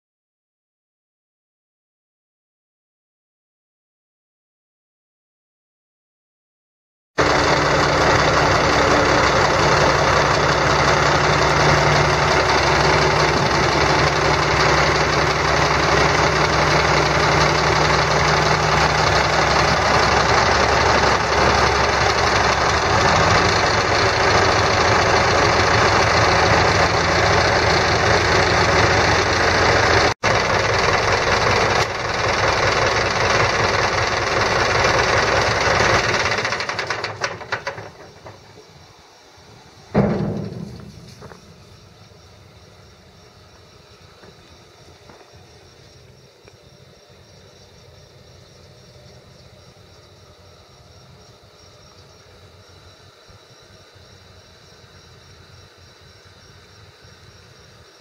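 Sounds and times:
diesel truck engine running: 7.2s - 38.8s, 39.9s - 46.2s.

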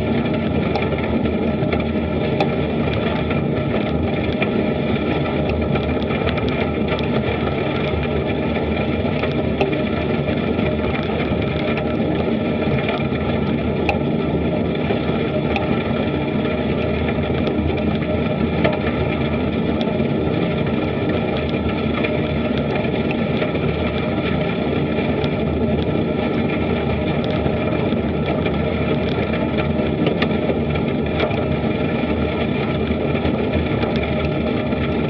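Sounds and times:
bicycle tyres rolling on gravel: 0.0s - 35.0s.

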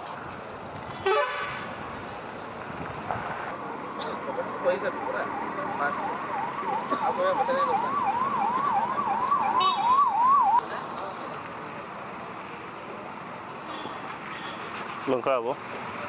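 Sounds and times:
electronic siren wailing: 4.6s - 10.6s.

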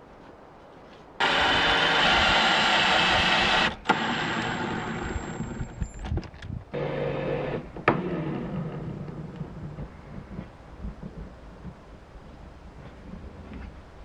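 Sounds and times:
drill driving screws into wood: 1.2s - 5.7s.

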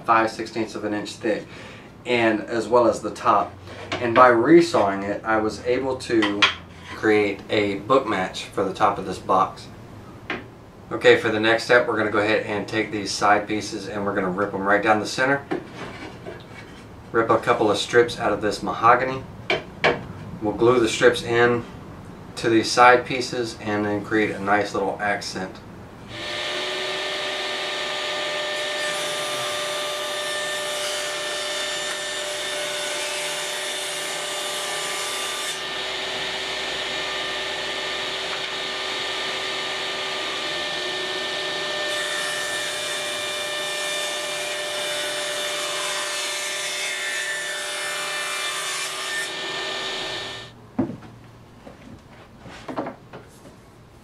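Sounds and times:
table saw motor whine: 26.1s - 32.4s, 35.5s - 44.4s, 48.9s - 50.6s
saw cutting wood: 26.1s - 50.5s.

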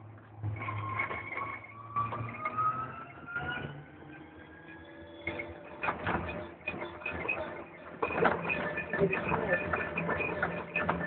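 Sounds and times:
knocks and rattles: 5.8s - 11.0s.

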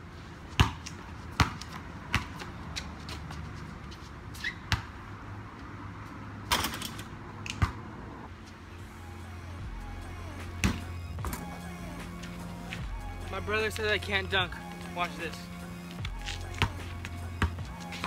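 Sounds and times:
ball striking hoop and backboard: 0.5s - 2.5s, 4.6s - 5.0s, 6.5s - 7.8s, 10.4s - 11.6s, 16.0s - 18.0s
basketball bouncing on concrete: 0.5s - 3.9s, 4.6s - 5.0s, 10.6s - 11.6s, 16.0s - 18.0s.

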